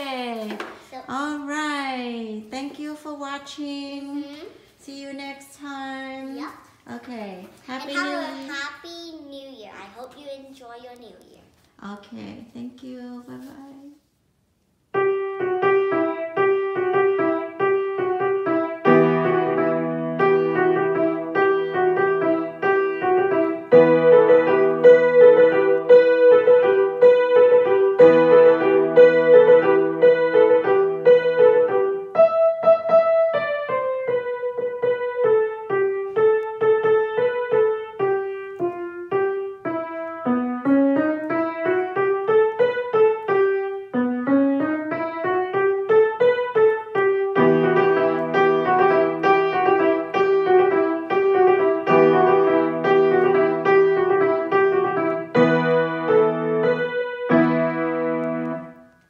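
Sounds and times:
grand piano playing: 14.9s - 59.0s.

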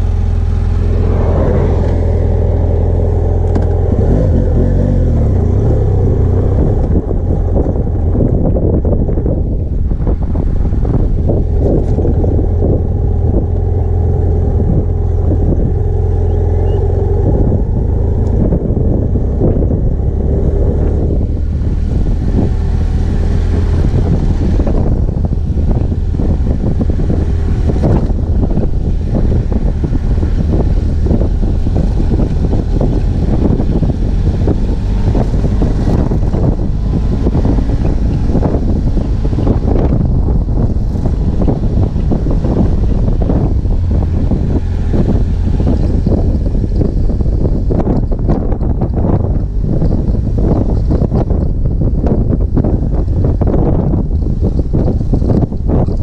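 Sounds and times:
rushing noise: 0.0s - 19.0s
motorcycle engine droning: 0.0s - 56.0s.

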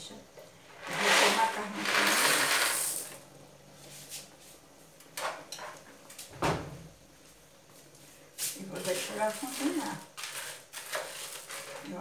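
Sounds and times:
macaroni poured into a pan: 0.8s - 3.2s, 8.8s - 12.0s.

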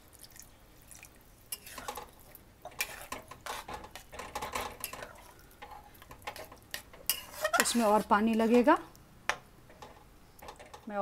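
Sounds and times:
metal spatula scraping a pan: 1.5s - 2.1s, 2.7s - 8.8s.

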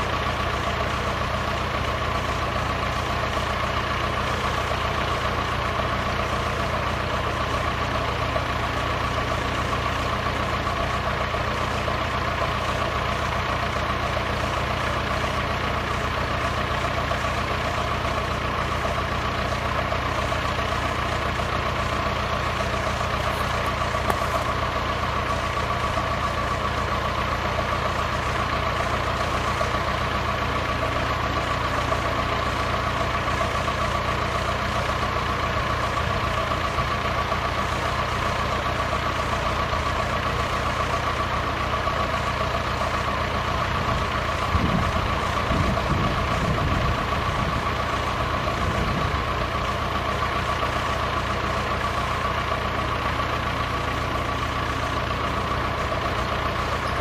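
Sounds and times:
low rumbles: 43.5s - 50.8s.

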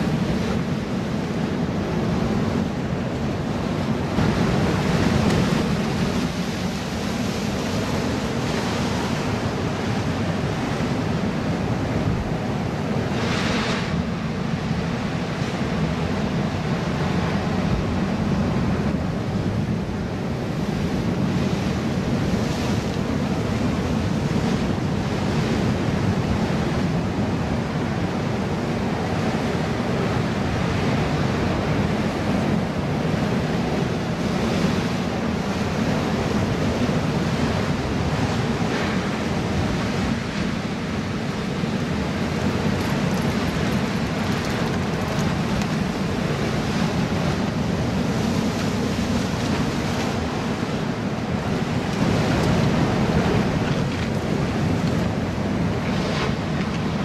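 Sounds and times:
wind buffeting microphone: 0.0s - 57.0s
surf breaking on rocks: 41.4s - 47.5s.

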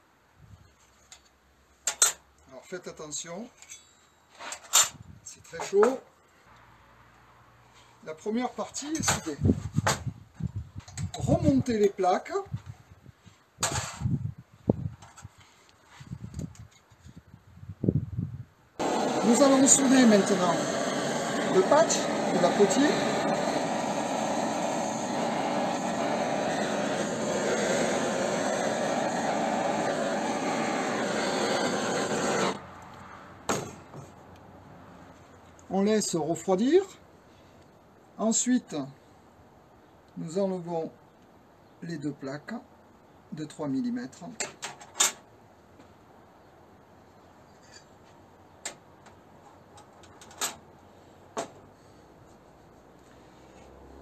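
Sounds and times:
gas torch hissing: 18.8s - 32.6s.

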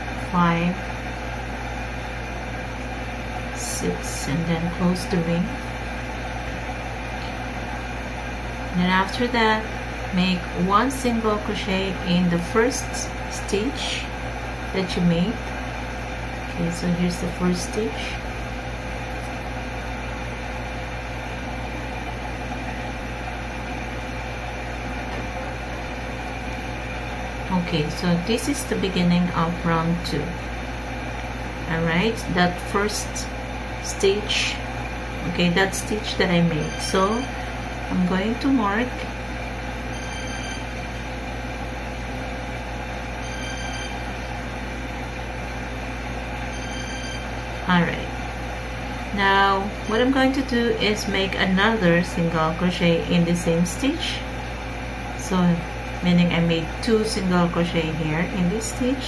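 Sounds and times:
background hum and hiss: 0.0s - 59.0s
faint held tone: 39.9s - 40.8s, 43.2s - 44.1s, 46.5s - 47.3s.

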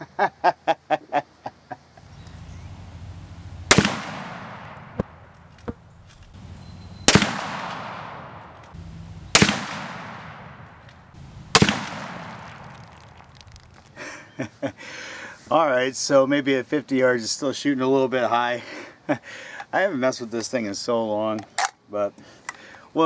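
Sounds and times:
rifle shots with echo: 3.6s - 5.6s, 7.0s - 13.3s.

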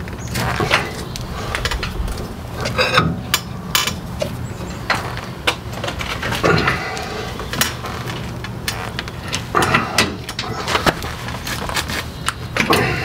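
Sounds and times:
low steady hum: 0.4s - 3.8s.

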